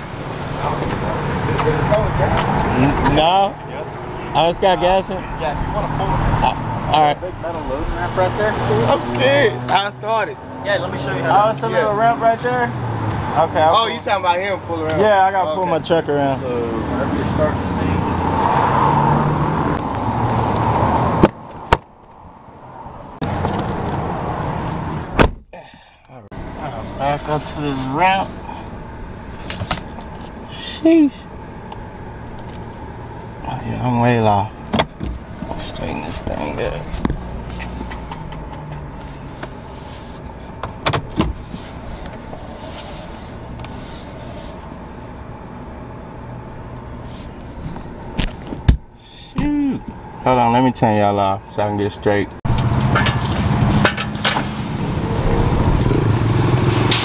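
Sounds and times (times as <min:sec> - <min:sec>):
truck door slamming shut: 0:25.1 - 0:25.6.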